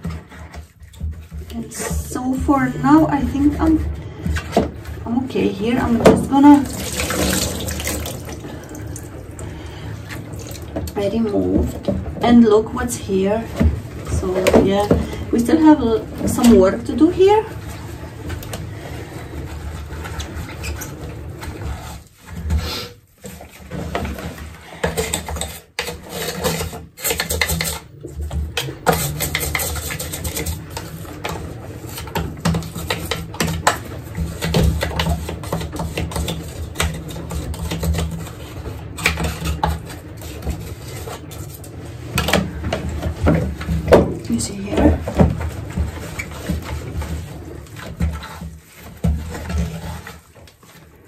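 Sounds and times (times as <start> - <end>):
cloth and brush scrubbing plastic: 0.0 - 51.0.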